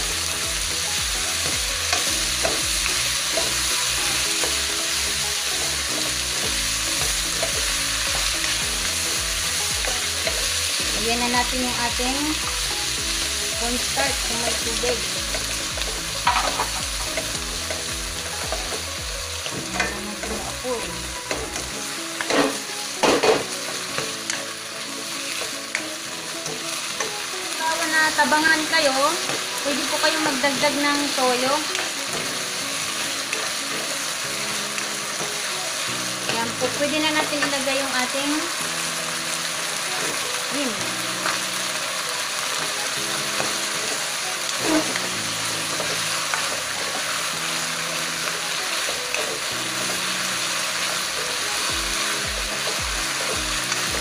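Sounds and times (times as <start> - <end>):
food sizzling in a wok: 0.0 - 54.0
spatula stirring in a pan: 0.2 - 11.6, 41.2 - 54.0
spatula knocking a pan: 14.7 - 18.8.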